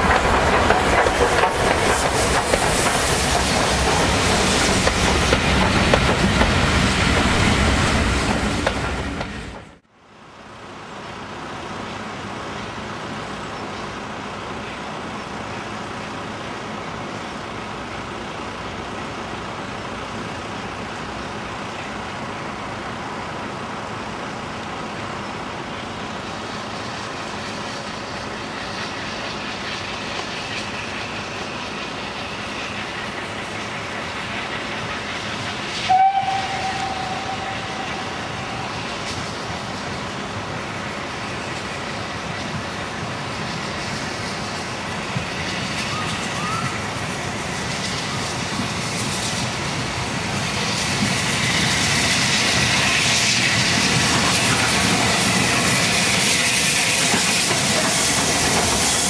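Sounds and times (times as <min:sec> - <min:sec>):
steam locomotive exhaust and hiss: 0:00.0 - 0:59.0
steam whistle blast: 0:35.8 - 0:38.8, 0:45.8 - 0:46.9.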